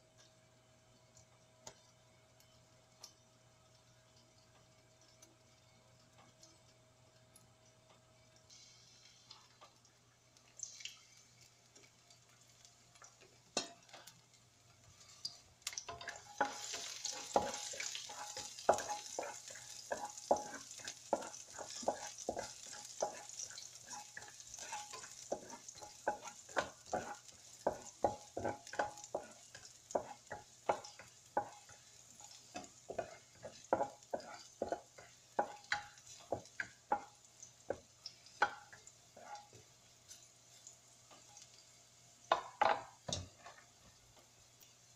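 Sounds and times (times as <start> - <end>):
food sizzling: 0.6 - 44.9
spatula scraping a wok: 15.9 - 37.1.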